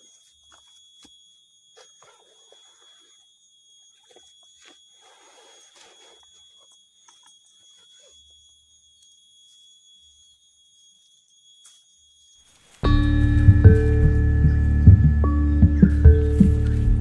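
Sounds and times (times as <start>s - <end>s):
rustles in leaf litter: 12.5s - 17.0s
high-pitched whine: 12.6s - 17.0s.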